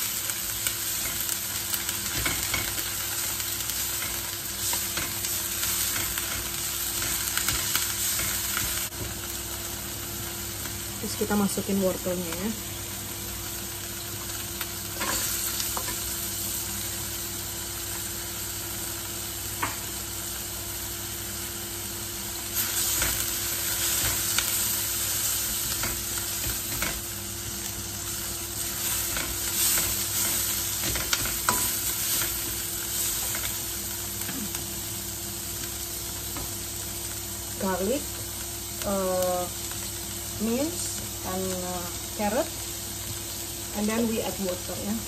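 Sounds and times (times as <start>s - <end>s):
food sizzling in oil: 0.0s - 45.0s
spatula scraping wok: 15.0s - 16.0s.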